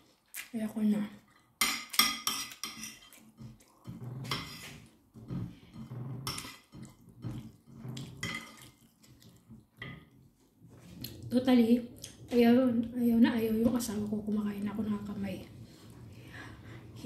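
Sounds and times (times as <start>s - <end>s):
metal spoon scraping ceramic plate: 1.9s - 3.2s, 3.8s - 8.7s
chewing: 6.8s - 9.8s.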